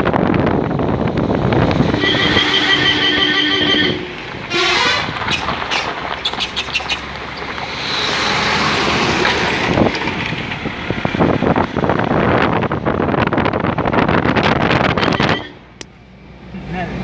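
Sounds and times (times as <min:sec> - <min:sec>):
wind noise on microphone: 0:00.0 - 0:15.8
motorcycle riding: 0:00.0 - 0:17.0
lorry passing close: 0:00.1 - 0:14.1
horn blast: 0:01.8 - 0:05.5.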